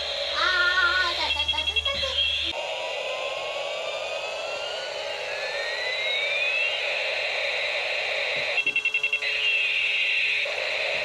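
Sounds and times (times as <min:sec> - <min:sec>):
toy rotor whir: 0:00.0 - 0:07.8
rapid electronic beeps: 0:00.0 - 0:11.0
toy siren sound effect: 0:00.1 - 0:11.0.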